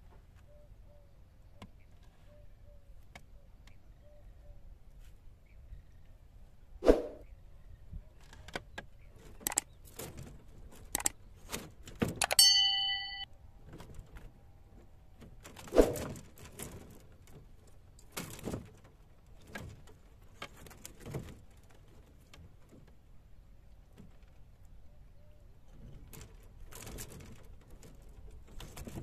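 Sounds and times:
sharp clicks: 8.8s - 9.8s, 10.9s - 11.2s, 12.1s - 12.5s
metal cage trap rattling: 12.2s - 13.2s
short bell-like ding: 12.2s - 13.3s.

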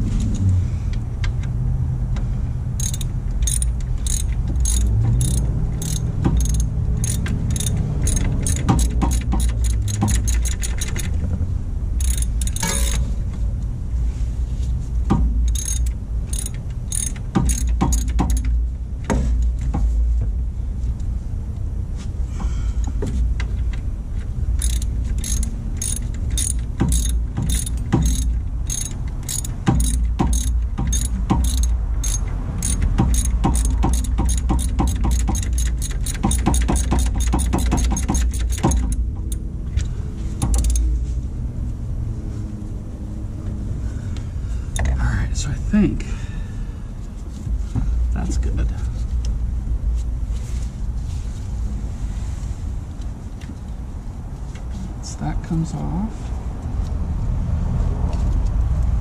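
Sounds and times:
ratchet wrench clicking: 2.8s - 11.2s, 12.0s - 13.0s, 15.5s - 18.6s, 24.5s - 40.9s.

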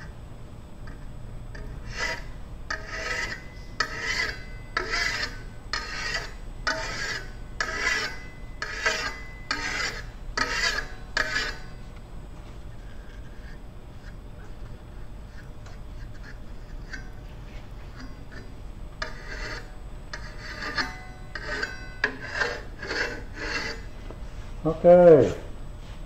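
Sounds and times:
file rasping on metal: 1.5s - 11.7s, 12.9s - 14.2s, 15.2s - 23.9s.

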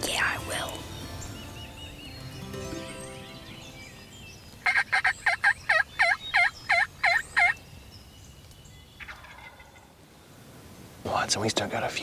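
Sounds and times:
wild turkey yelping: 4.6s - 7.6s, 9.0s - 9.9s.

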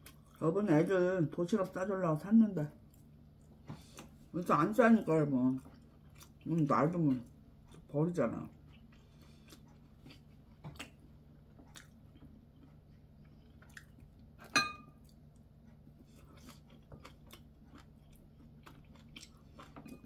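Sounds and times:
quiet chewing: 0.0s - 0.4s, 2.8s - 4.3s, 5.5s - 7.9s, 8.5s - 20.0s
chopsticks clinking porcelain bowl: 14.4s - 15.0s.

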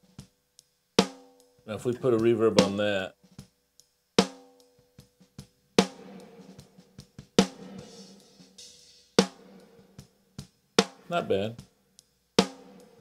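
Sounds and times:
snare drum hits with reverb: 2.6s - 3.0s, 7.4s - 9.9s.

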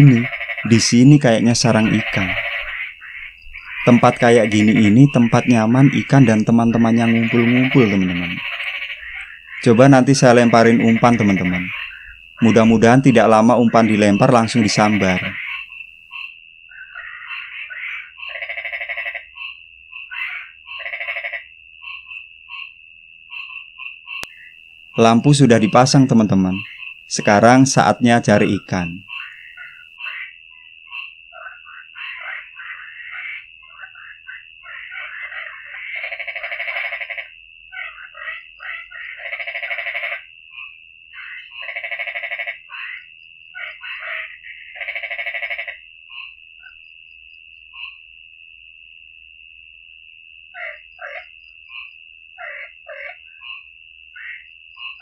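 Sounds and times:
high-pitched drone: 0.0s - 2.7s, 3.8s - 8.5s, 9.6s - 15.7s
frogs calling: 0.0s - 55.0s
rattling pulsed frog calls: 0.0s - 55.0s
high-pitched ringing trill: 3.4s - 17.0s.

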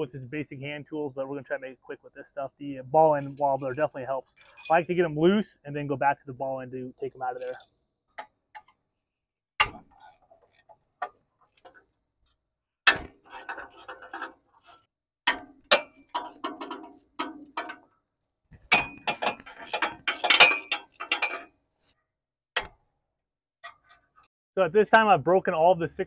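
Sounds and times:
tool clatter: 7.4s - 7.7s, 12.9s - 17.9s, 18.5s - 22.0s.

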